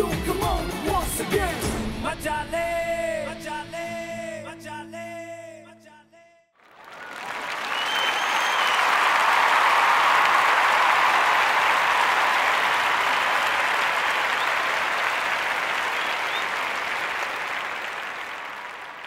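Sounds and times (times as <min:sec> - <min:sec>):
crowd applauding: 0:06.6 - 0:19.0.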